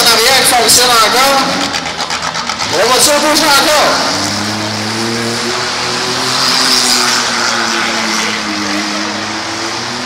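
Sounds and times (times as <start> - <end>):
car engines droning: 0.0 - 10.0.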